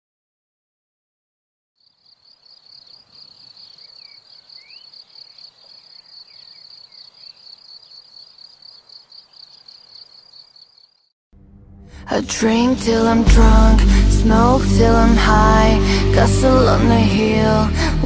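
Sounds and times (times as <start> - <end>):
insects trilling: 1.8 - 11.1.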